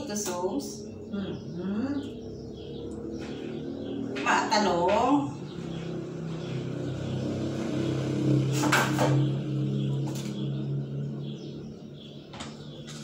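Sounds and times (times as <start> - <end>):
low steady hum: 0.0 - 8.5.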